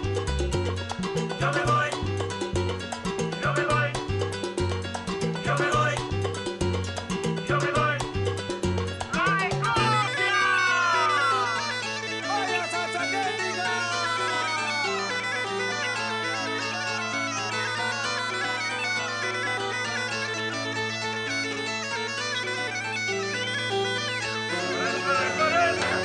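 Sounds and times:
bagpipe tune with drone: 9.8 - 26.0.

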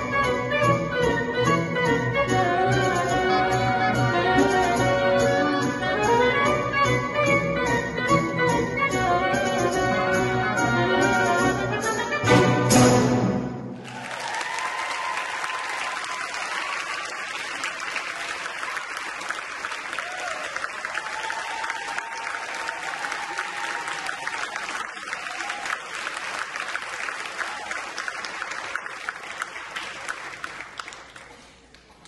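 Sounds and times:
audience applauding: 13.7 - 32.0.

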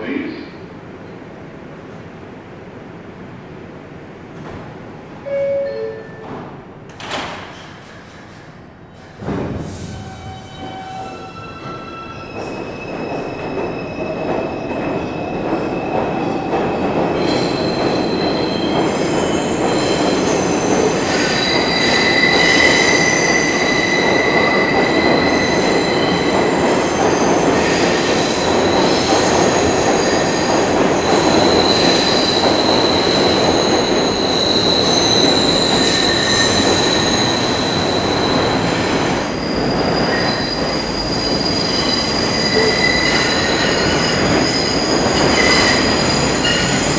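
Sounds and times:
train wheel and rail rumble: 0.0 - 46.9
high-pitched wheel squeal: 39.4 - 46.9.

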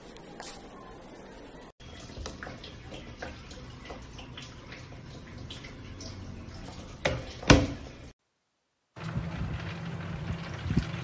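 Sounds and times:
water trickling in washing machine: 1.8 - 8.1, 9.0 - 11.0.

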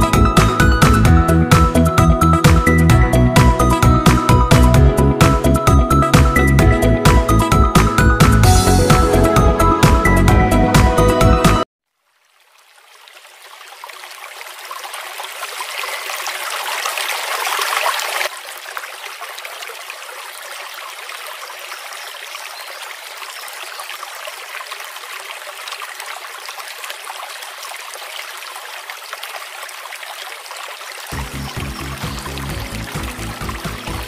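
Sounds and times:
fountain water trickling: 11.8 - 34.0.

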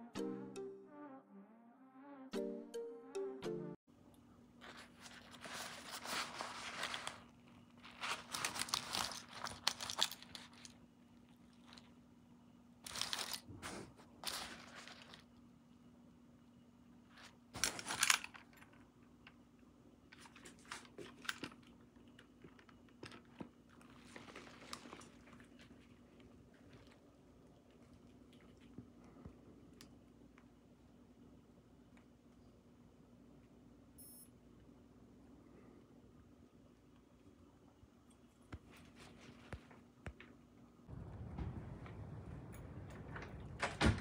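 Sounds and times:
faint low hum: 3.9 - 44.0
crinkling and rustling: 4.5 - 15.5, 17.0 - 19.4, 20.0 - 30.5, 38.2 - 44.0.

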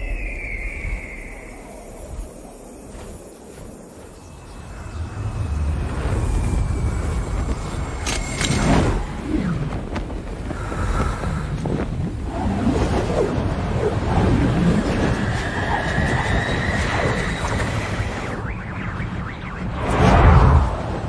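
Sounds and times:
rushing wind: 0.0 - 21.0
jet engine running: 14.6 - 21.0
whooshes passing close: 19.6 - 21.0.

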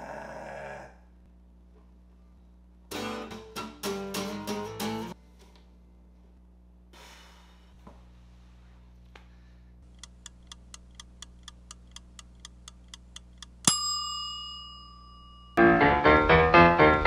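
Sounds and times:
mechanical timer ticking: 9.8 - 14.1
timer bell ding: 13.6 - 15.6
piano music: 15.6 - 17.0.

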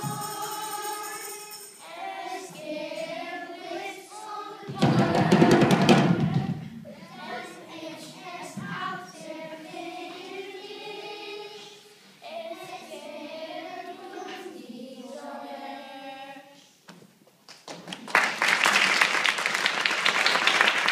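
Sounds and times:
children singing: 0.0 - 16.7.

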